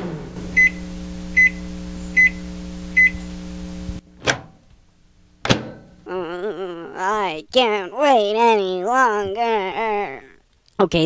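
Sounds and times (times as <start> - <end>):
microwave oven humming: 0.0 - 6.2.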